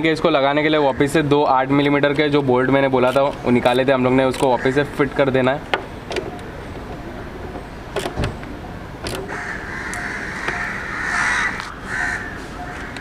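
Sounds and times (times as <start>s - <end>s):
crows cawing: 4.6s - 5.0s, 9.3s - 13.0s.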